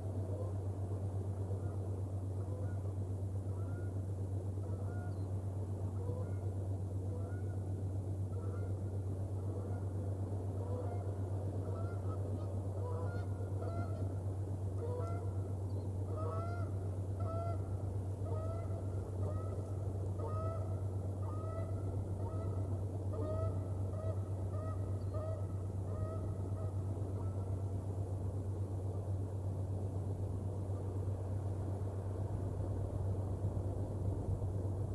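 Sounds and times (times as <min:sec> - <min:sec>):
steady low hum: 0:00.0 - 0:34.9
geese honking: 0:01.5 - 0:02.9, 0:03.5 - 0:04.0, 0:04.6 - 0:05.2, 0:06.0 - 0:06.5, 0:07.1 - 0:07.6, 0:08.3 - 0:14.2, 0:14.8 - 0:15.4, 0:16.1 - 0:27.7.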